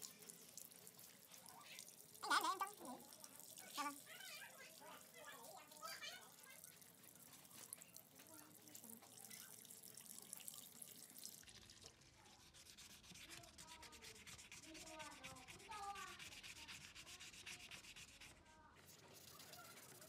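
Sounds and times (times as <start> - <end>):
brushing: 12.2 - 20.0
hand sanding scratchy strokes: 12.4 - 20.0.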